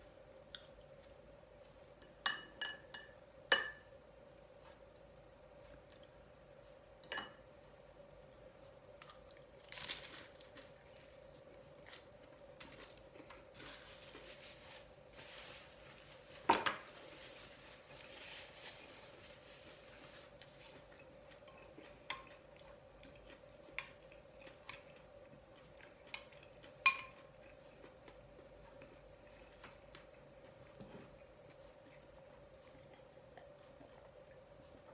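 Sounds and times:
faint steady hum: 0.0 - 34.9
spoon clinking on ceramic: 2.0 - 3.9, 26.9 - 27.2
quiet chewing: 4.3 - 6.8, 7.7 - 14.2, 17.8 - 34.9.

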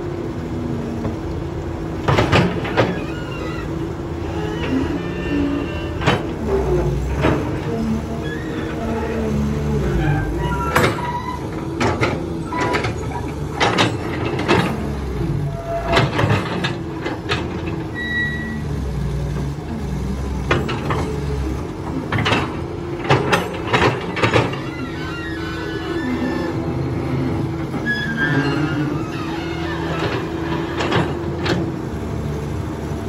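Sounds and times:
excavator diesel engine running: 0.0 - 33.0
high squeak: 17.9 - 18.6, 24.6 - 26.7, 27.8 - 30.7.

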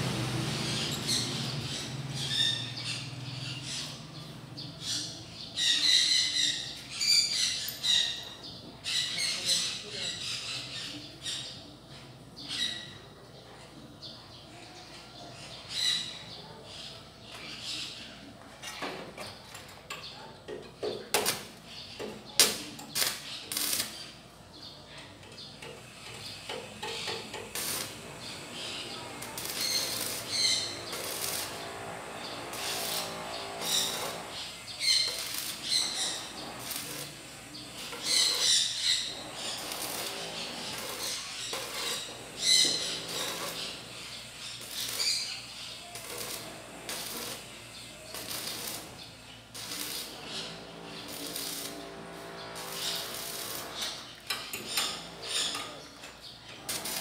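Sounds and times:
welding arc crackling and sizzling: 0.0 - 5.7, 22.3 - 24.3, 25.6 - 57.0.

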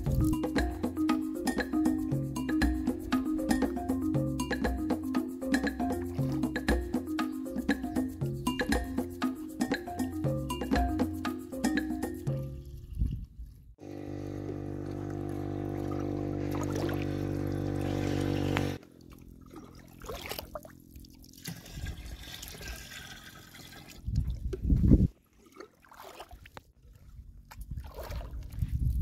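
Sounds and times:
jerrycan filling with gurgles: 20.0 - 24.2
water pouring into plastic jerrycan: 20.0 - 24.3.

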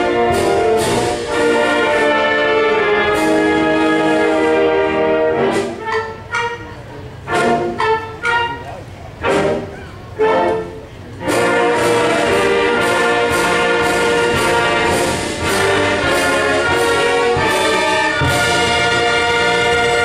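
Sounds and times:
brass chords: 0.0 - 20.0
steady percussion beat: 11.2 - 20.0.

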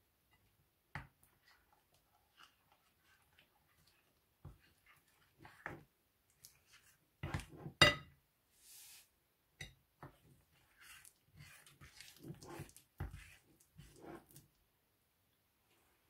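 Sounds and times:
spoon scraping glass plate: 10.6 - 14.4.

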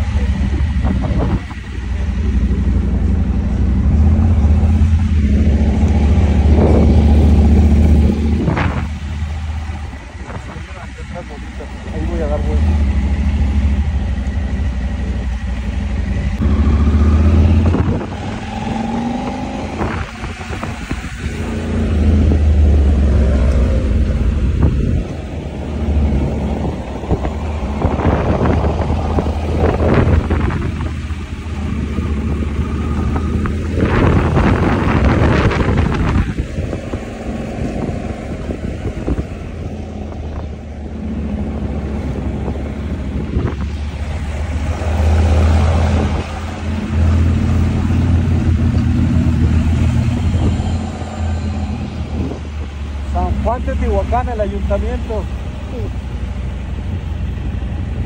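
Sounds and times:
wind buffeting microphone: 0.0 - 11.3, 16.4 - 53.4
motorcycle engine running: 0.0 - 44.7.

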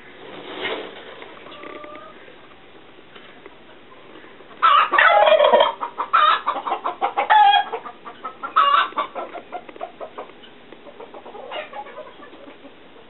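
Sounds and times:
turkeys calling: 4.0 - 13.0.

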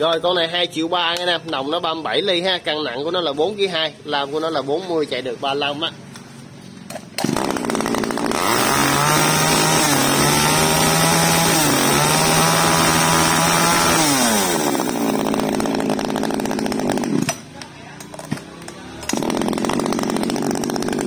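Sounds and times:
chainsaw idling and revving: 7.2 - 17.5, 19.0 - 21.0.

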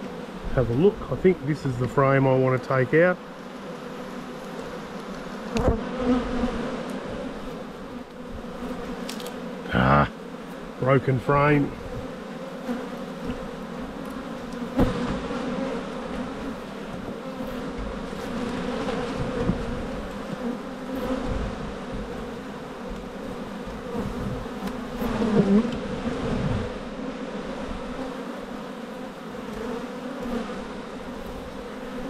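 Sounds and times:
bees buzzing: 0.0 - 32.0
hive tool knocking on wood: 5.1 - 7.1, 13.2 - 15.5, 16.1 - 25.9.

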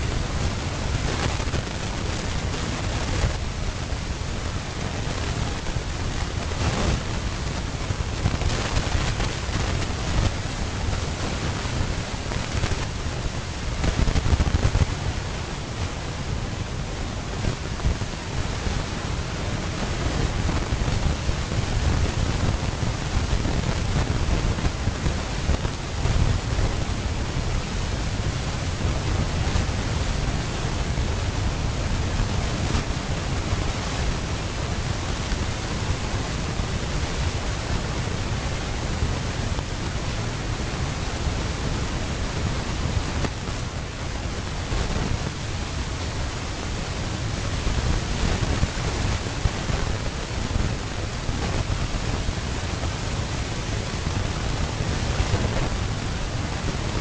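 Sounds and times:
steady rushing noise: 0.0 - 57.0.

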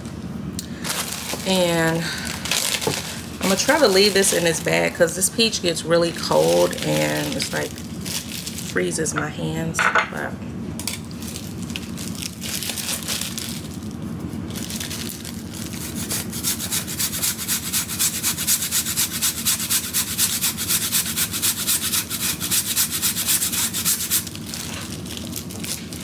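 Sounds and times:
fruit scraped on rasp grater: 15.8 - 24.3.

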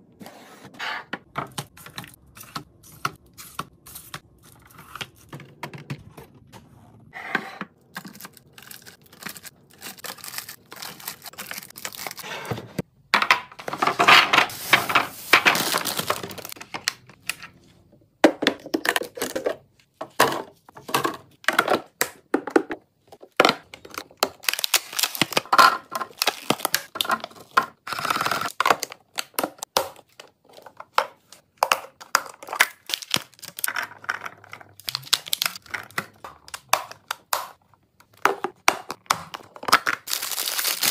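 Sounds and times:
packaging crinkling and tearing: 8.0 - 12.2, 14.5 - 16.9, 24.2 - 27.4, 32.4 - 33.8, 34.8 - 35.7, 40.0 - 40.9.

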